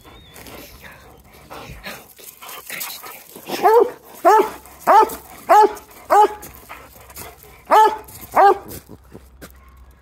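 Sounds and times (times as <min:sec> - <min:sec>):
dog barking: 0:03.5 - 0:06.5, 0:07.7 - 0:08.7.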